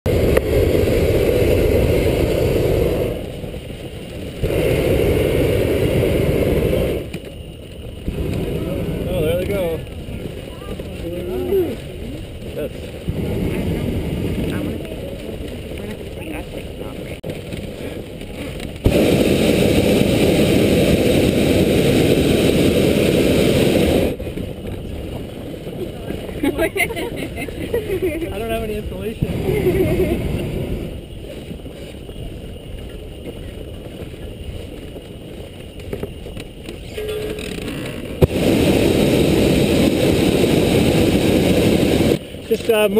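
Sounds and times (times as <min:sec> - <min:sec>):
propane burner roaring: 0:00.1 - 0:42.9.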